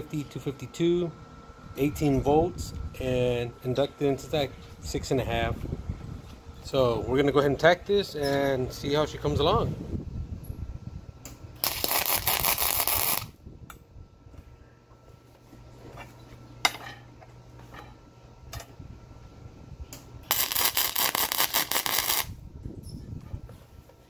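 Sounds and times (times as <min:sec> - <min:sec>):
low hum: 0:00.0 - 0:24.0
crackling welding arc: 0:11.6 - 0:13.4, 0:20.2 - 0:22.4.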